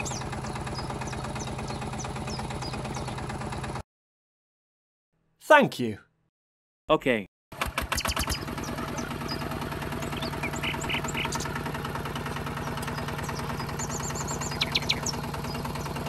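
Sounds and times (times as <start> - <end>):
tractor engine idling: 0.0 - 3.8, 7.6 - 16.0.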